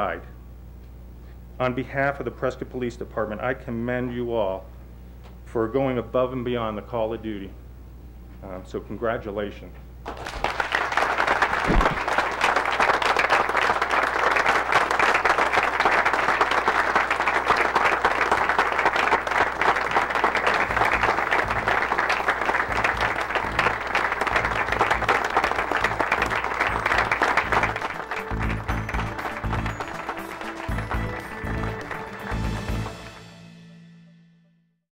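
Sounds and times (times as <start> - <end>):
people clapping: 10.0 - 33.3.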